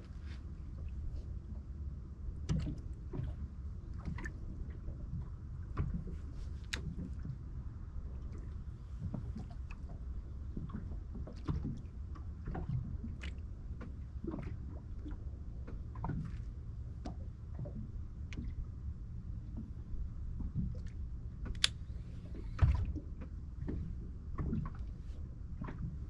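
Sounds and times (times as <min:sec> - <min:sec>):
steady low rumble: 0:00.0 - 0:26.0
water lapping against boat hull: 0:00.0 - 0:26.0.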